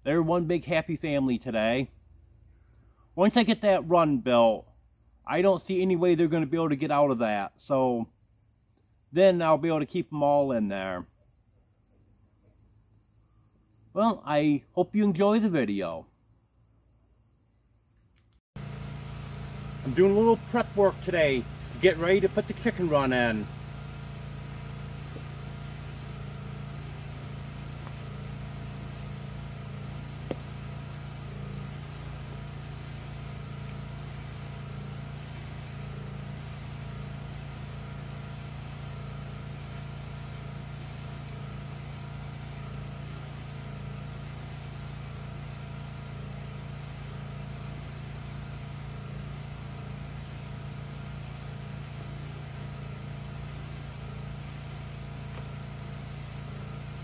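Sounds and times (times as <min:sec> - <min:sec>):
generator running: 0:18.6 - 0:57.0.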